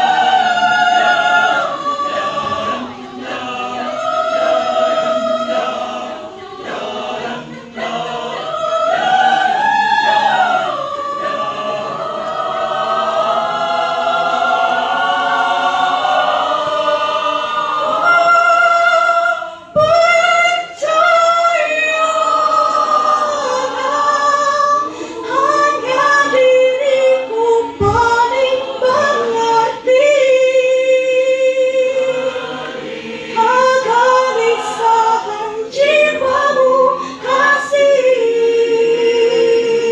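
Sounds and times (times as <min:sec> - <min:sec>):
mixed choir singing a cappella: 0:00.0 - 0:39.9.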